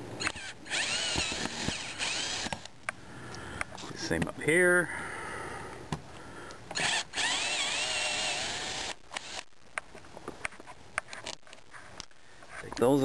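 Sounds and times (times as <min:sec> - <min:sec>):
cordless screw gun motor: 0:00.2 - 0:02.7, 0:06.8 - 0:09.5.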